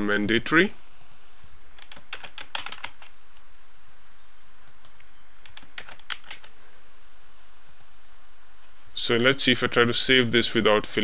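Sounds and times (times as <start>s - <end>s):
faint steady hiss: 0.0s - 11.0s
typing on computer keyboard: 1.8s - 3.2s, 4.7s - 6.6s.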